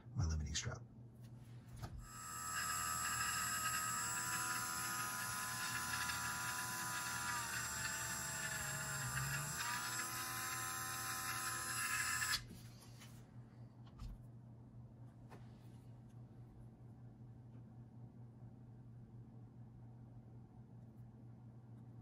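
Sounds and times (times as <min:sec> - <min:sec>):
rotary tool high whine: 0:02.0 - 0:12.5.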